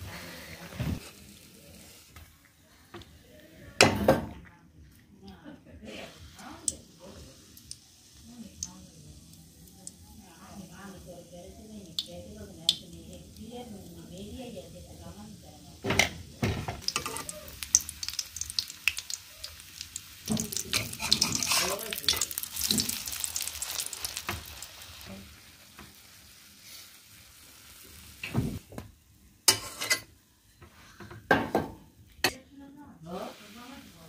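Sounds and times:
batter sizzling in hot oil: 0.0 - 2.3, 5.9 - 28.7, 29.4 - 30.5, 33.0 - 34.0
metal spatula scraping pan: 20.7 - 21.8, 29.5 - 30.1.

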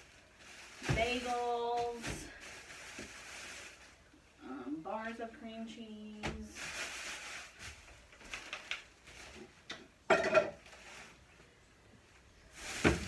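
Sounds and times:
plastic bags rustling: 0.0 - 4.3, 5.9 - 11.6, 12.3 - 13.0.

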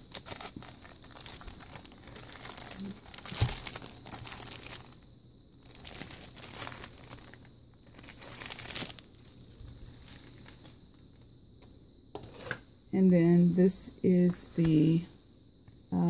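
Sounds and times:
plastic packaging crinkling: 0.0 - 5.0, 5.6 - 11.2.

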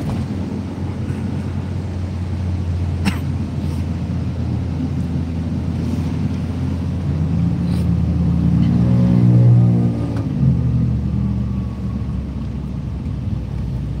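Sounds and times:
car cabin engine and road hum: 0.0 - 14.0.

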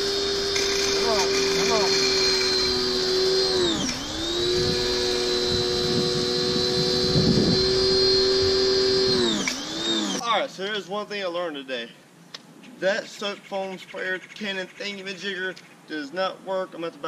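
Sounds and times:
pressure washer motor whine: 0.0 - 10.2.

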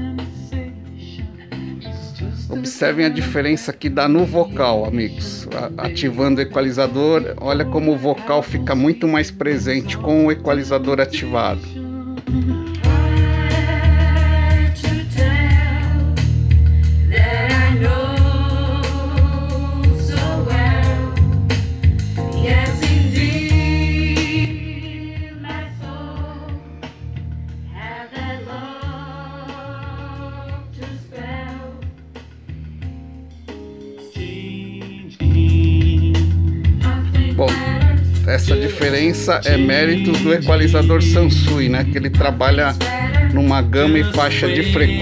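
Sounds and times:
slow song with singing: 0.0 - 45.0.

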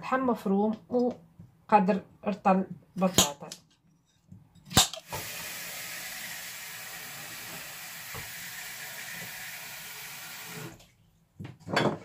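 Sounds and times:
water running from tap into pot: 4.9 - 10.8.

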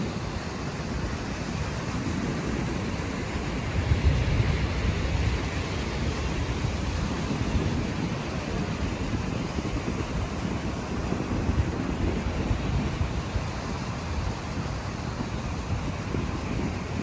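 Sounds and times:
surf breaking on shore: 0.0 - 17.0
wind buffeting microphone: 0.0 - 17.0.

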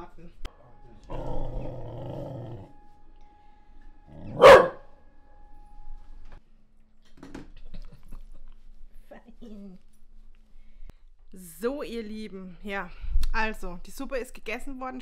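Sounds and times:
dog barking: 4.2 - 4.9.

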